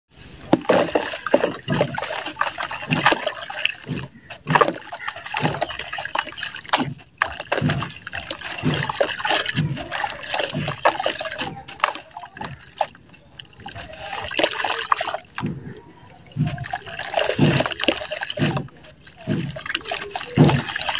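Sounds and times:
water splashing and sloshing: 0.1 - 20.9.

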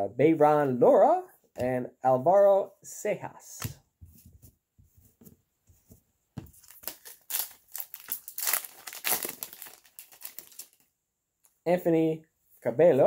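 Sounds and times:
foil wrapper crinkling and tearing: 6.6 - 10.9.

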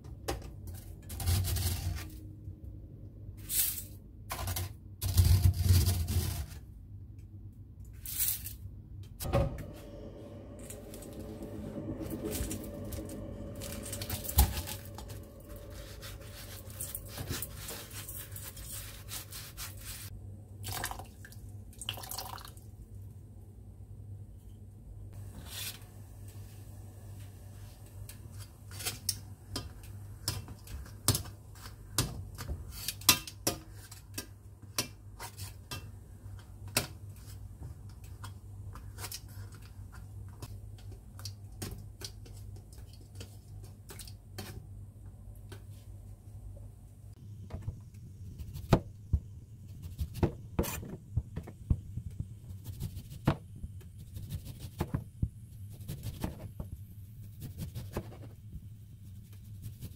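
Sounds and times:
steady low hum: 9.0 - 20.5.

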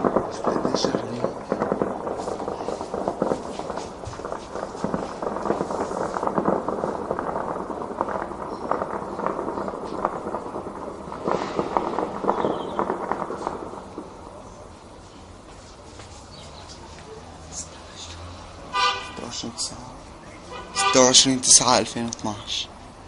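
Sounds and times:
distant gunfire: 0.0 - 14.1.

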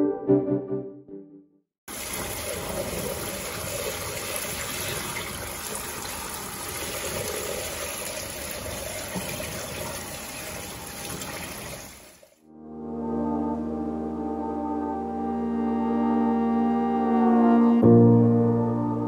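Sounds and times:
water gushing through drain grate: 1.9 - 12.4
water splashing on concrete: 1.9 - 12.4.

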